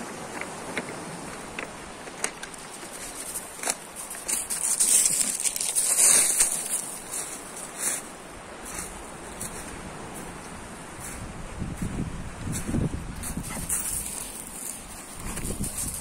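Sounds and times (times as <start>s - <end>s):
stones clattering on a beach: 0.0s - 8.0s, 13.2s - 16.0s
wind and surf hiss: 0.0s - 16.0s.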